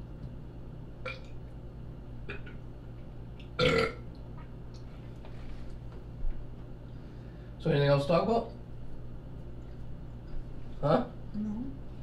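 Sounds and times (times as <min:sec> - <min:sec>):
person burping: 0:01.0 - 0:01.3, 0:03.6 - 0:04.0.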